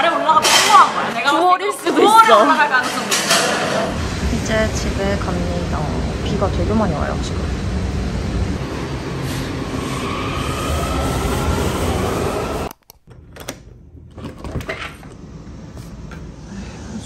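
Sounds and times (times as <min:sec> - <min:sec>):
loud rumble: 0:03.8 - 0:12.8
train electric motor whine: 0:03.9 - 0:12.8.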